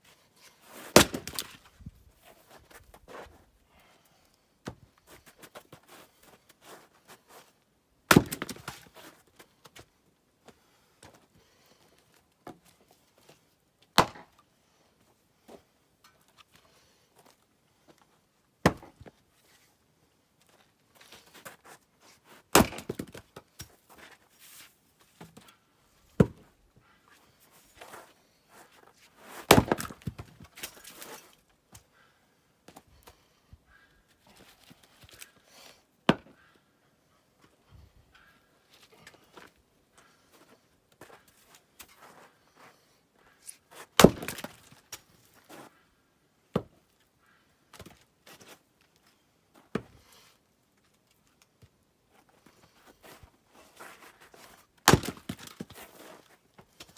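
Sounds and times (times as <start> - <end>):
axe striking wood: 0.9 - 1.6, 8.1 - 8.8, 14.0 - 14.3, 18.6 - 19.1, 22.5 - 23.2, 29.4 - 30.3, 44.0 - 44.6, 54.8 - 55.7.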